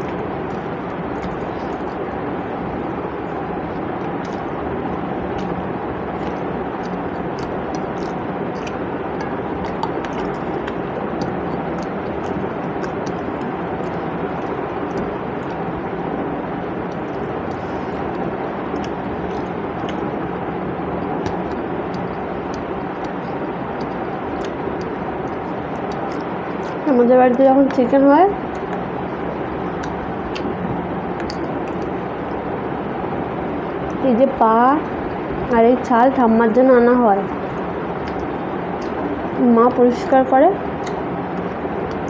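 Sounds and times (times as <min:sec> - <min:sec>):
chewing and mouth smacks: 0:00.0 - 0:15.9, 0:16.6 - 0:27.8, 0:28.4 - 0:32.5, 0:37.3 - 0:39.3, 0:40.7 - 0:42.0
fingers mixing food on a plate: 0:00.0 - 0:32.5
steady background noise: 0:00.0 - 0:42.0.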